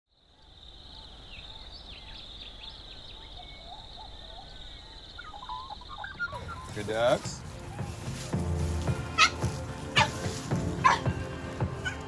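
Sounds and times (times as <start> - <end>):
insect trill: 0.1 - 9.4
birds chirping: 0.2 - 12.0.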